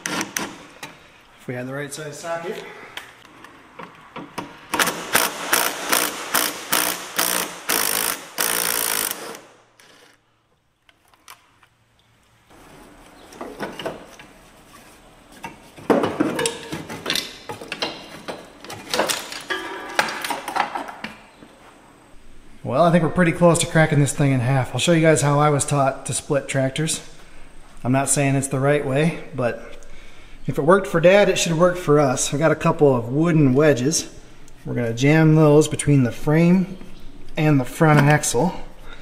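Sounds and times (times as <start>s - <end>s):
impact driver hammering: 4.8s - 9.5s.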